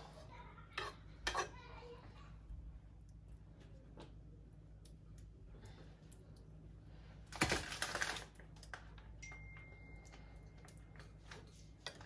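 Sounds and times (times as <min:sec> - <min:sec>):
utensil scraping frying pan: 0:00.0 - 0:01.8.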